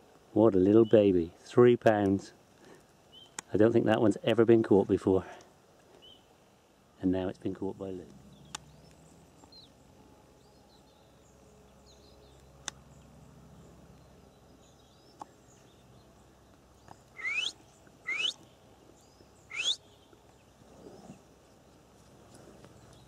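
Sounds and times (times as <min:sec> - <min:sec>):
faint bird chirps: 0:08.2 - 0:21.4
short rising whistled calls: 0:17.1 - 0:18.4, 0:19.5 - 0:19.9.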